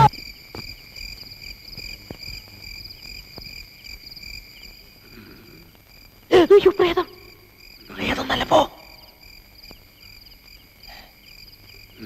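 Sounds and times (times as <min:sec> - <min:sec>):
crickets chirping: 0:00.0 - 0:12.0
faint ticks: 0:00.5 - 0:06.3, 0:09.2 - 0:12.0.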